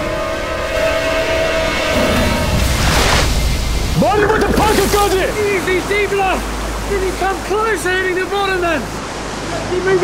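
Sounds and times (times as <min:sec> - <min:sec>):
loud water splash: 0:02.6 - 0:06.9.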